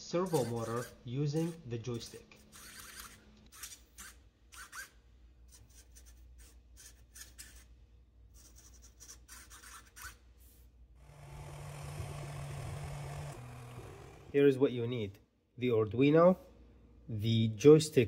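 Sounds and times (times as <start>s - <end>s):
servo motor whirring: 0.2s - 1.6s, 2.5s - 4.8s, 11.0s - 14.4s
servo motor steady buzz: 2.4s - 3.2s, 11.0s - 14.4s.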